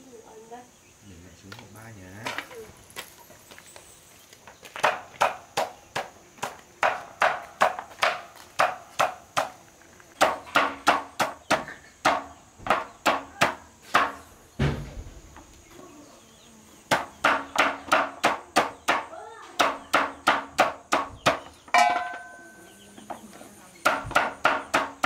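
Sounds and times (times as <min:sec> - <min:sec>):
dull low thump: 0:14.6 - 0:15.5.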